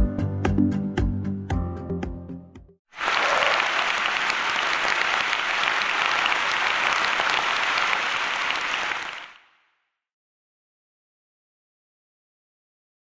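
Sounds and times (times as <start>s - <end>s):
applause: 3.0s - 9.6s.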